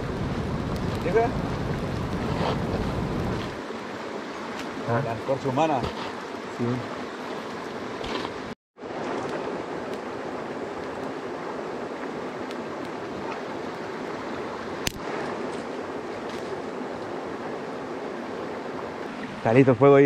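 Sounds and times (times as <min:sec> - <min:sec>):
flowing river water: 0:00.0 - 0:20.0
sharp crack: 0:14.8 - 0:15.1.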